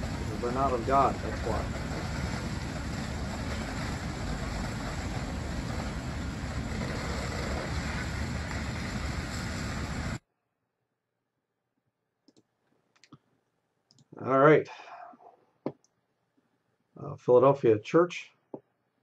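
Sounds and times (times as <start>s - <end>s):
large fire rushing: 0.0s - 10.2s.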